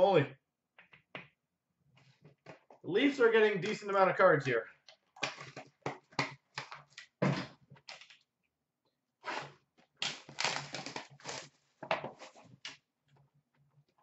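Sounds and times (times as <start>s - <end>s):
wrapping rustling and crinkling: 9.4s - 12.8s.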